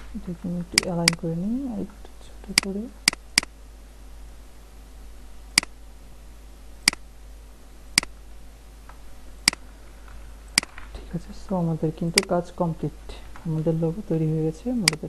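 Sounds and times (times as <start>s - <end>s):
low steady hum: 0.0s - 15.0s
mouse button clicking: 0.8s - 1.2s.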